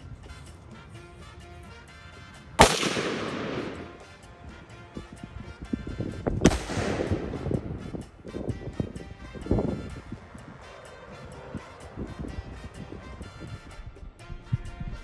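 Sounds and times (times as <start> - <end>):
background music: 0.0 - 15.0
rifle shot: 2.6 - 4.1, 6.4 - 8.0
sharp crack: 2.6 - 4.2, 6.4 - 8.0.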